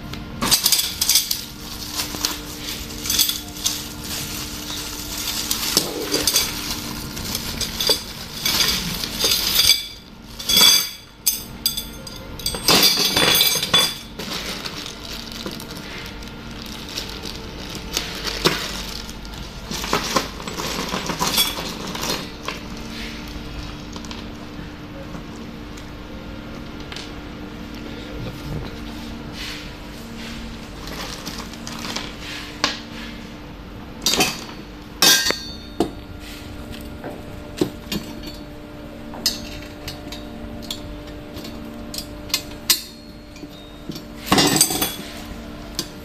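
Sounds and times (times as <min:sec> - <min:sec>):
metal tubes clinking: 0:00.4 - 0:19.1, 0:19.7 - 0:22.3, 0:34.0 - 0:36.0, 0:39.2 - 0:45.2
plastic packaging rustling: 0:01.0 - 0:10.4, 0:14.1 - 0:24.4, 0:30.0 - 0:32.2.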